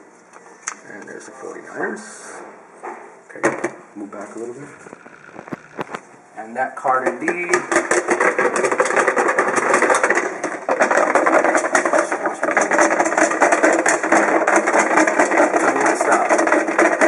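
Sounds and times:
paper slips rattling in plastic tub: 7.0 - 17.0.

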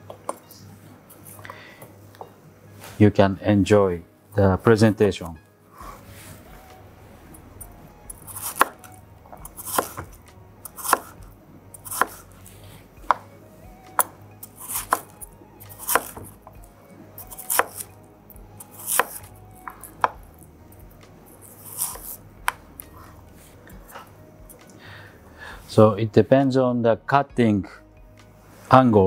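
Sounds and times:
knife slicing on cutting board: 8.1 - 11.2, 11.8 - 12.3, 14.0 - 16.4, 17.2 - 17.9, 18.6 - 20.2, 21.4 - 23.2.

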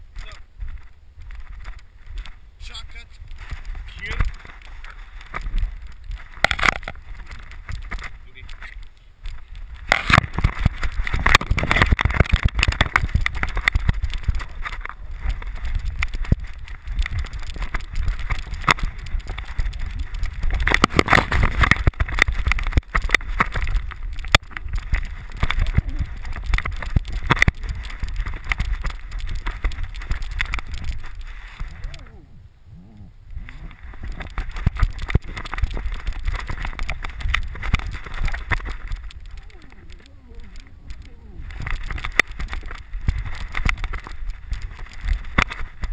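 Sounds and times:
camera handling knocks and rumbling: 6.3 - 8.1.

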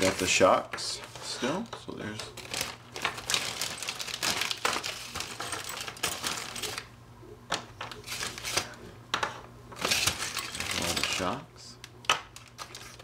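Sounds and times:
plastic bag crinkling: 0.0 - 0.6, 2.0 - 6.9, 9.8 - 11.4, 12.3 - 13.0.

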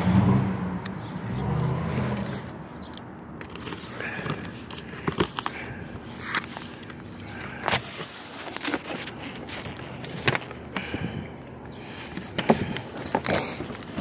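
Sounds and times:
cardboard scraping and rustling: 3.4 - 10.6, 12.0 - 14.0.

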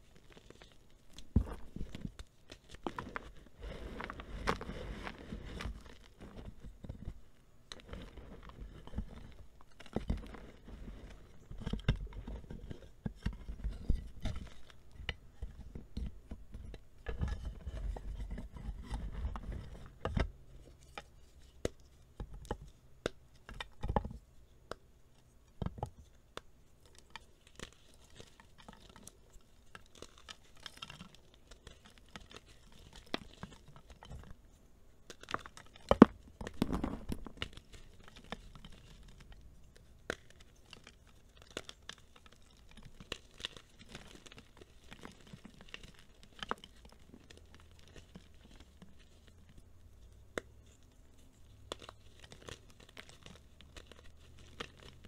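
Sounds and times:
powdery rustles: 0.0 - 14.9
hands crushing chalk: 0.0 - 55.0
chalk pieces snapping: 51.6 - 55.0.

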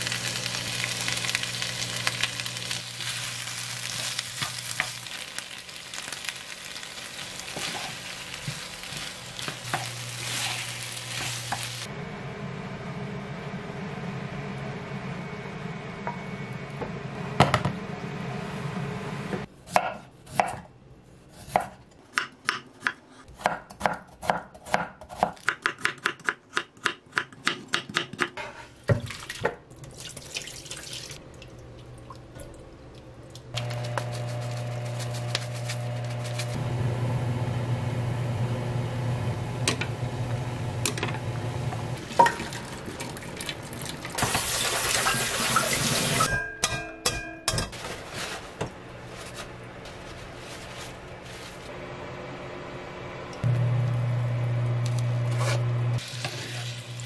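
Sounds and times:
knife chopping on wooden board: 21.5 - 28.4.

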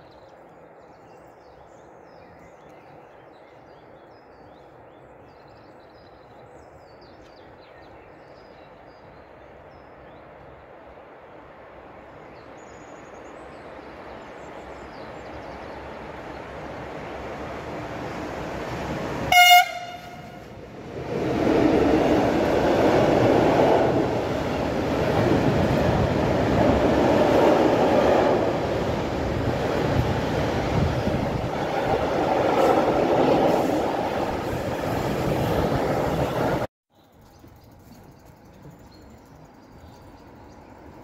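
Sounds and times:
train wheels rumbling over rails: 15.0 - 36.7
train horn blast: 19.3 - 20.6.

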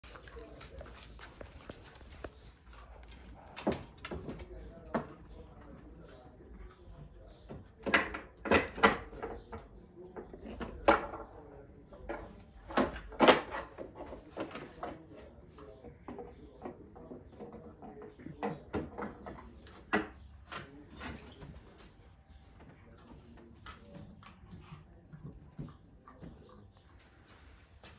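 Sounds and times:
puppies knocking against wooden box: 7.4 - 11.4, 16.0 - 20.7.

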